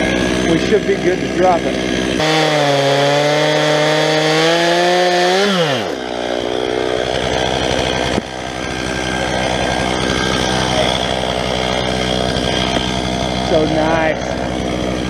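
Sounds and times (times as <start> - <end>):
chainsaw revving and idling: 0.0 - 15.0.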